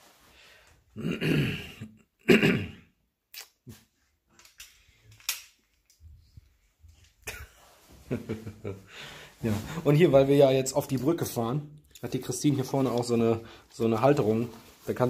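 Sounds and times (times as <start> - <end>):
plastic sunglasses clicking: 4.3 - 6.0.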